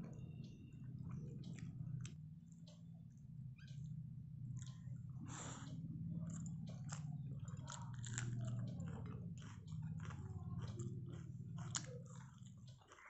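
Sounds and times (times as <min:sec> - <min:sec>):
steady low hum: 0:00.0 - 0:13.0
person chewing wetly: 0:00.8 - 0:02.3, 0:04.4 - 0:13.0.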